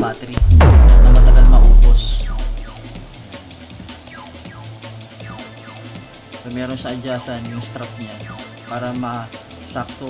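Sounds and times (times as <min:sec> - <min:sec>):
deep boom: 0:00.4 - 0:03.1.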